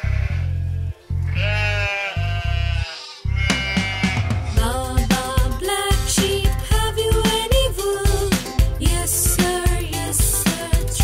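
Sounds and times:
cartoon background music: 3.4s - 11.0s.

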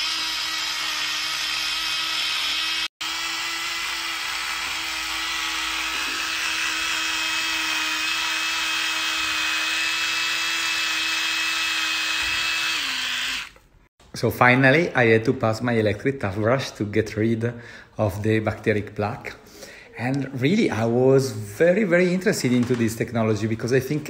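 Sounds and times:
electric toothbrush humming: 0.0s - 13.6s.

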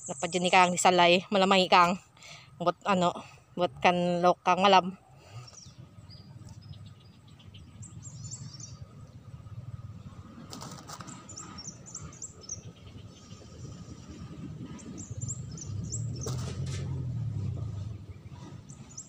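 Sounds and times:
low outdoor rumble: 0.0s - 19.0s
birds chirping: 5.2s - 16.6s, 17.8s - 19.0s
brief rustle: 16.2s - 16.9s.

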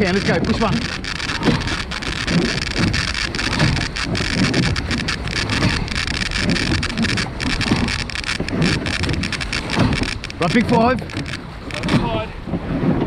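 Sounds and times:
oar splashes and knocks: 0.0s - 13.0s
water rushing along boat hull: 0.0s - 13.0s
wind buffeting microphone: 0.0s - 13.0s.

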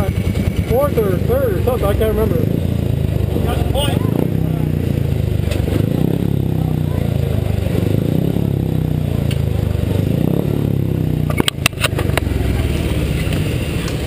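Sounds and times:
motorcycle engines droning: 0.0s - 14.0s
sharp knocks and clicks: 11.3s - 12.3s.

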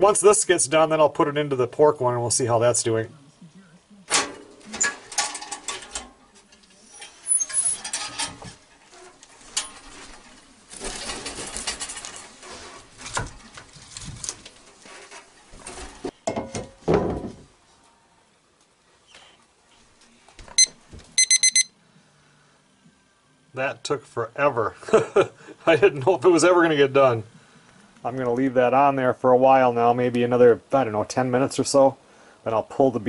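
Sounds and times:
firewood knocking and scraping: 7.9s - 17.5s
thermometer alarm beeps: 20.6s - 21.7s.

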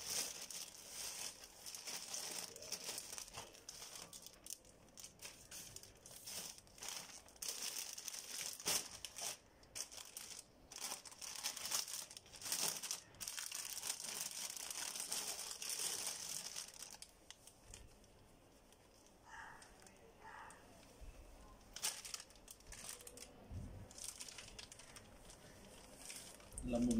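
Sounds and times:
plastic wrapping crinkling: 0.0s - 20.4s, 21.4s - 26.9s.

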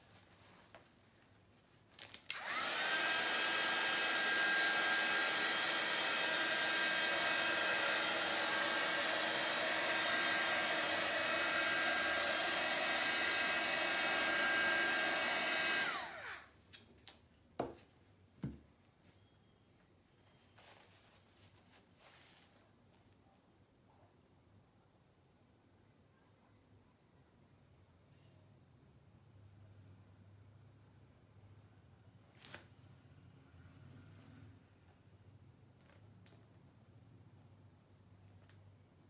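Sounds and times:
hair dryer running: 2.3s - 16.5s.

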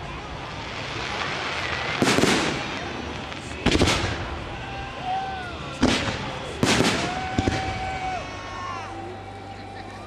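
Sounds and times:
fireworks booming: 0.1s - 4.6s, 5.6s - 8.2s.

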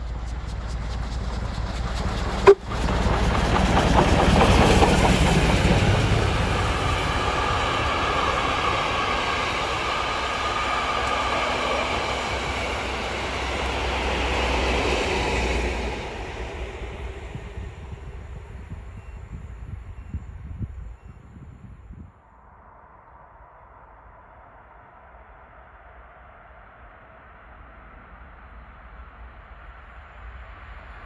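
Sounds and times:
wheels clacking on rails: 0.0s - 16.5s
steam locomotive passing: 0.0s - 19.0s.

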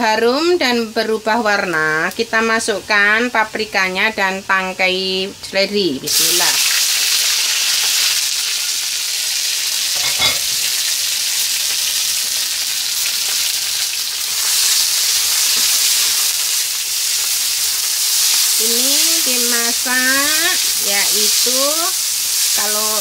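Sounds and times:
vegetables sizzling in oil: 0.1s - 23.0s.

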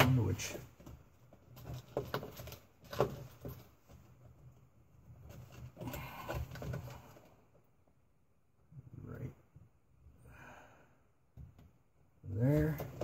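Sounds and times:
clicks and knocks of wiring connectors: 0.0s - 4.6s.

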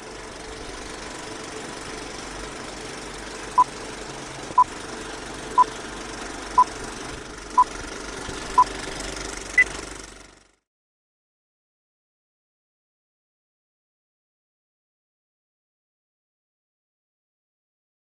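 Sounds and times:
film projector whirring clatter: 0.0s - 10.6s.

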